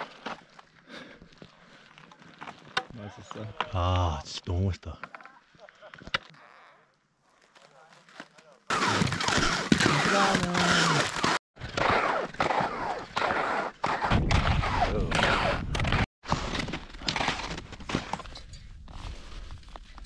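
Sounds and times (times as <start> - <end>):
boots and skis crunching in snow: 16.3 - 20.0.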